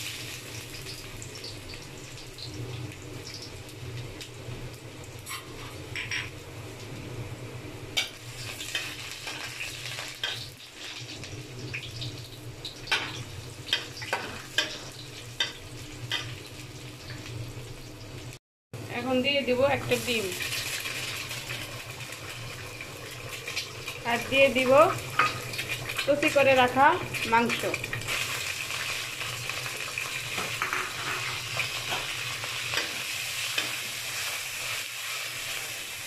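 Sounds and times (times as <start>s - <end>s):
garlic sizzling in hot oil: 0.0s - 18.4s, 19.0s - 36.0s
metal spatula scraping wok: 5.2s - 5.8s, 30.4s - 32.1s.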